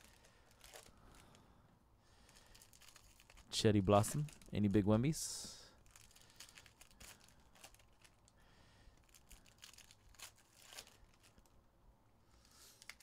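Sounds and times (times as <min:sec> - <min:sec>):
foil wrappers crinkling and tearing: 0:00.0 - 0:01.4, 0:02.2 - 0:04.8, 0:05.8 - 0:11.5, 0:12.4 - 0:13.0.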